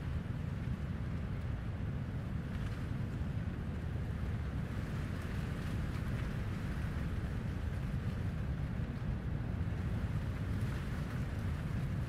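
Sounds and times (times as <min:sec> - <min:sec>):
coastal wind rumbling: 0:00.0 - 0:12.0.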